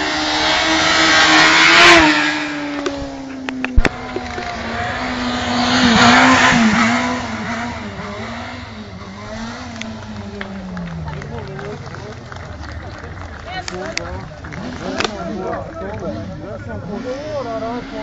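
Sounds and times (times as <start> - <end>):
engine revving high: 0.0 - 18.0.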